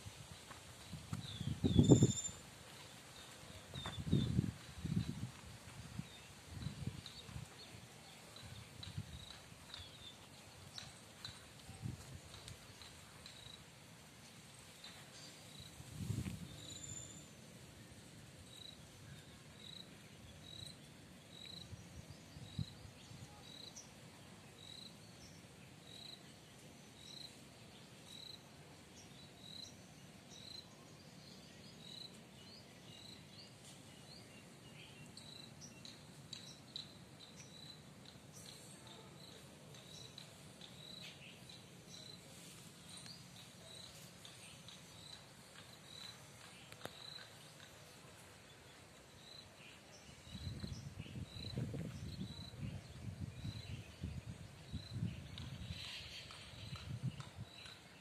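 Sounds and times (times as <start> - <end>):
faint high chirps and ticks: 0.3 - 58.0
cricket chirping: 35.2 - 42.2, 42.9 - 47.7.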